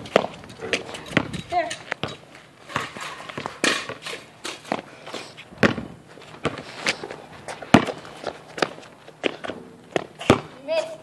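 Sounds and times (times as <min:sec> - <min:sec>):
footsteps on concrete: 0:00.0 - 0:11.0.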